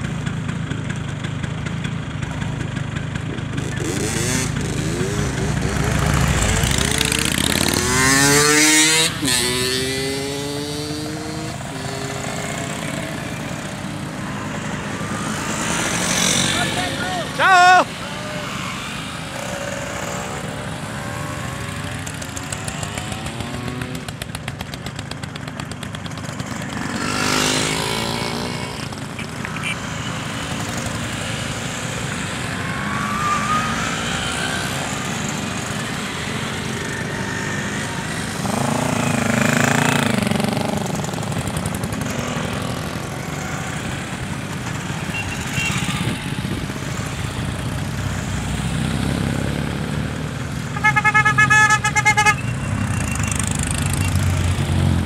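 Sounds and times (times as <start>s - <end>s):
cars passing: 3.5s - 24.6s, 25.6s - 55.0s
scooters buzzing past: 3.6s - 47.6s.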